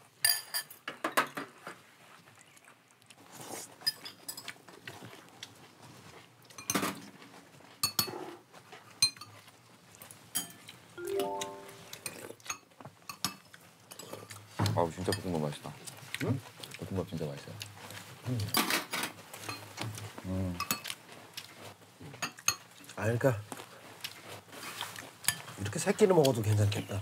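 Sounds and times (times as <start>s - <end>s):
background music: 11.0s - 12.0s.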